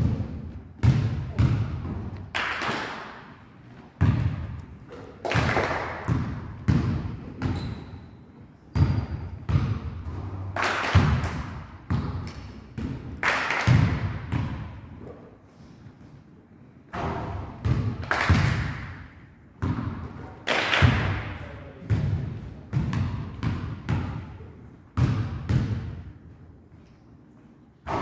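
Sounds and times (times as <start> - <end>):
basketballs thudding on wooden floor: 0.0 - 2.2.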